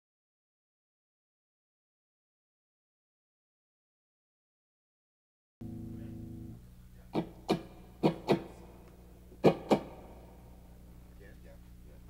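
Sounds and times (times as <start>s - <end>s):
electric guitar chords: 5.6s - 8.8s
amplifier hum: 5.6s - 12.0s.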